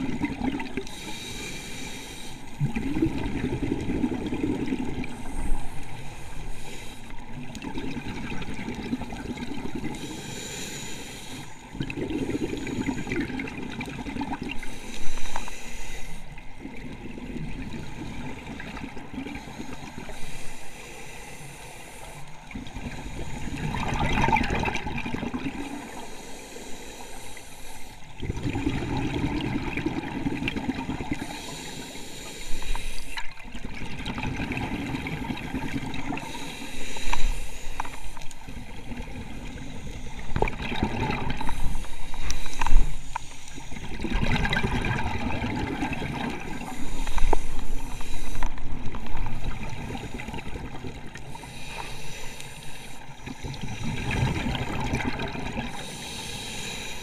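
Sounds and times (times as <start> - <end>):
diver breathing through regulator: 0.8 - 7.3, 9.3 - 13.4, 14.4 - 16.4, 19.2 - 24.6, 25.4 - 30.2, 31.0 - 33.3, 34.1 - 57.0
bubbling exhalations: 43.8 - 47.0.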